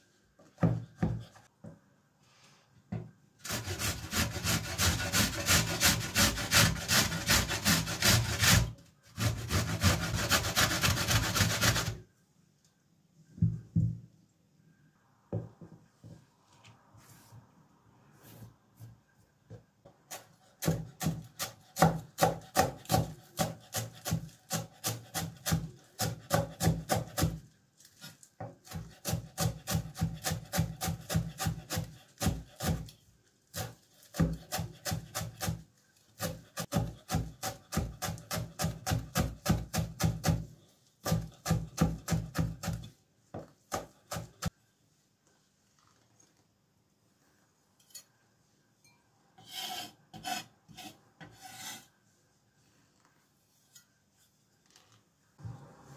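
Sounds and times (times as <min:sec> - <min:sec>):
knife chopping on wooden board: 0:20.1 - 0:27.4, 0:36.2 - 0:40.4, 0:41.0 - 0:44.5.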